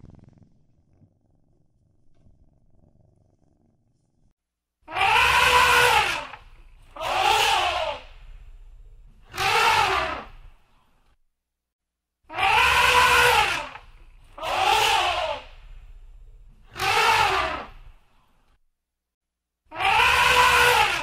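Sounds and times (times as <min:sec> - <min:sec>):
elephant trumpeting: 0:04.9 - 0:08.1, 0:09.3 - 0:10.4, 0:12.3 - 0:15.6, 0:16.7 - 0:17.8, 0:19.7 - 0:21.0.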